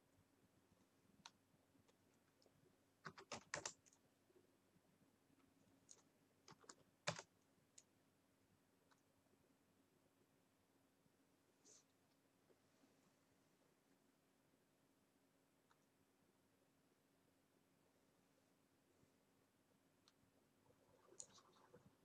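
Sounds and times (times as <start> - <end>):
computer keyboard clicks: 3.0 - 4.0, 5.9 - 7.3.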